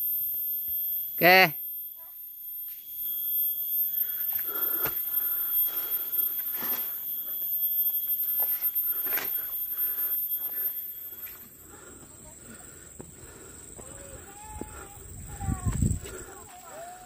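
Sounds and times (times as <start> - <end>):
person breathing hard: 4.0 - 6.4, 8.9 - 16.6.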